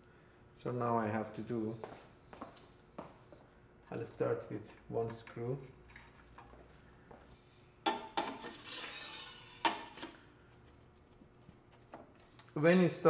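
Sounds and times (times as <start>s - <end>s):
metal scraping: 8.4s - 10.1s.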